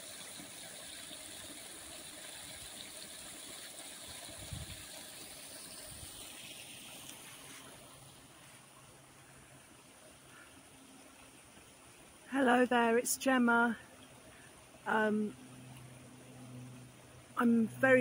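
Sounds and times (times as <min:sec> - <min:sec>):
rainwater running: 0:00.0 - 0:13.0.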